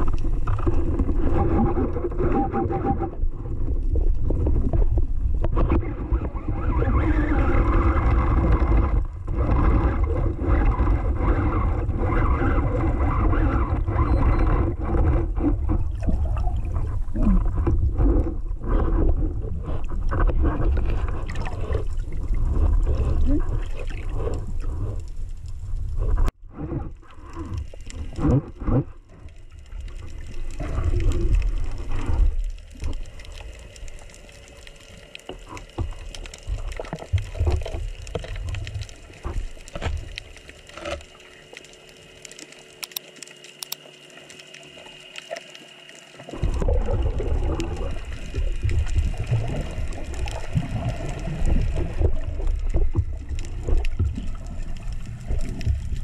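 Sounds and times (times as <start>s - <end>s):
muffled underwater rushing: 0.0s - 56.0s
clicks: 42.2s - 44.4s.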